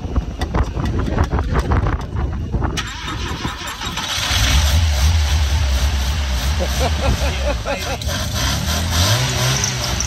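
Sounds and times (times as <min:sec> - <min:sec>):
engine cranking and running: 0:00.5 - 0:10.0.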